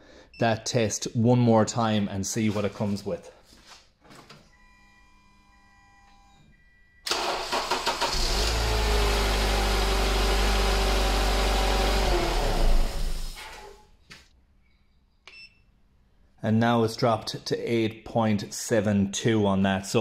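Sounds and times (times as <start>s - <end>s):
car starter cranking: 7.1s - 9.4s.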